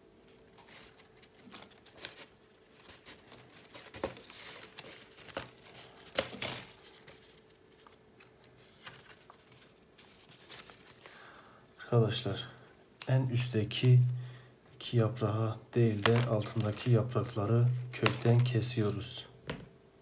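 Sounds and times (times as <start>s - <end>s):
leaves rustling and crinkling: 0.2s - 11.2s, 15.8s - 19.2s.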